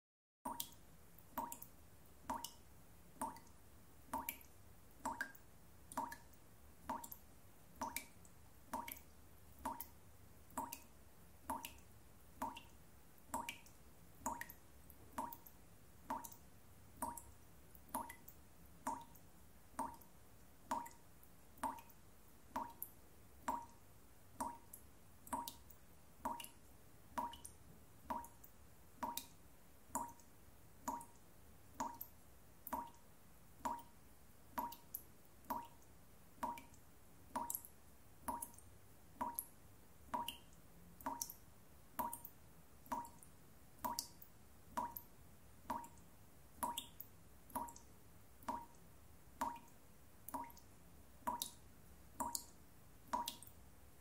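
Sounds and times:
water drops dripping from tap: 0:00.5 - 0:23.8, 0:24.4 - 0:33.0, 0:33.6 - 0:51.6, 0:52.2 - 0:53.6.

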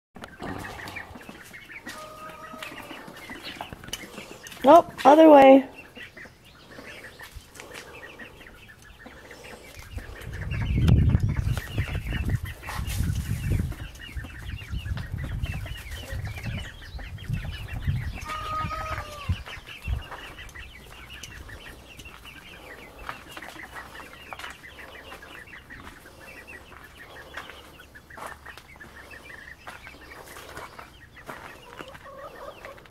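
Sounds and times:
chicks peeping and chirping: 0:00.2 - 0:32.9.

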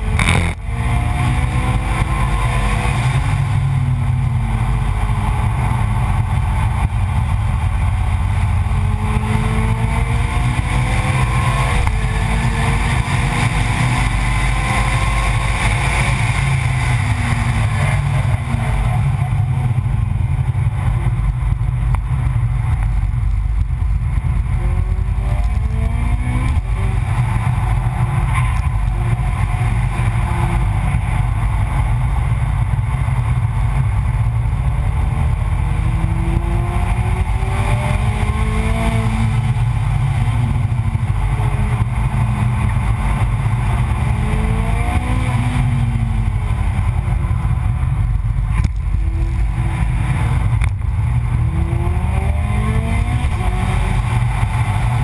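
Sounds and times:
race car engine accelerating: 0:00.0 - 0:21.2, 0:34.3 - 0:55.0
wind and road rumble: 0:00.0 - 0:55.0.

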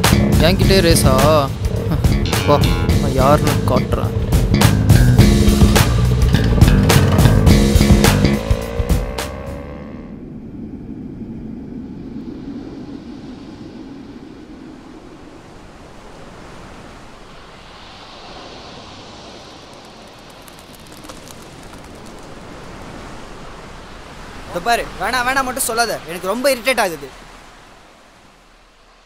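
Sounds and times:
sea surf breaking on beach: 0:00.0 - 0:04.8, 0:12.0 - 0:29.0.

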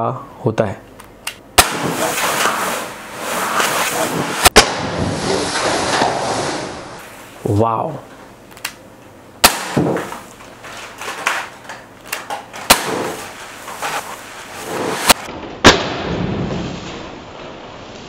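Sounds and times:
air pistol shots popping: 0:01.3 - 0:02.1, 0:04.4 - 0:05.0, 0:09.4 - 0:10.2, 0:12.6 - 0:13.3, 0:15.0 - 0:16.1.

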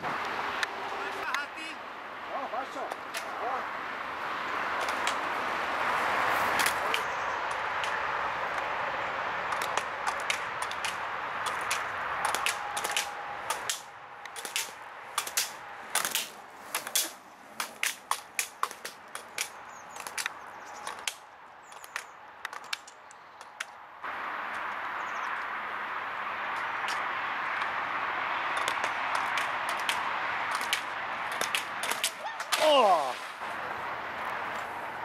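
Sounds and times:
outdoor background noise: 0:00.0 - 0:35.0
skater clacking slalom poles: 0:02.6 - 0:03.6, 0:04.8 - 0:05.4, 0:06.3 - 0:08.7, 0:09.5 - 0:23.8, 0:26.5 - 0:35.0.

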